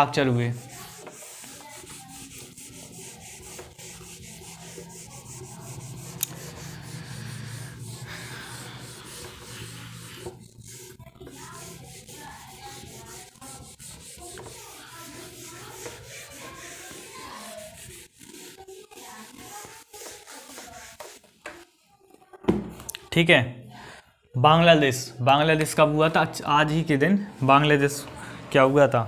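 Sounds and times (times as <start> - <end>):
rubbing and scratching: 0.0 - 21.4
steady low hum: 4.0 - 11.0.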